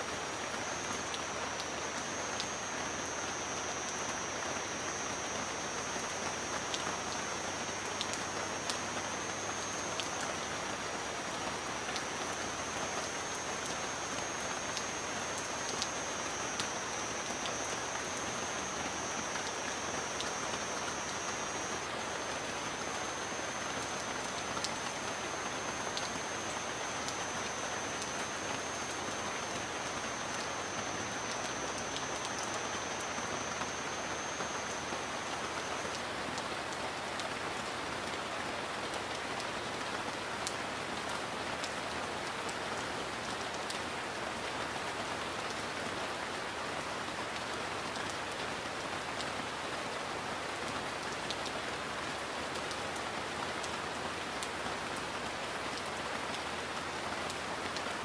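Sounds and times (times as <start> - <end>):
heavy rain falling: 0.0 - 58.0
high-pitched steady tone: 0.2 - 11.3, 11.9 - 36.0.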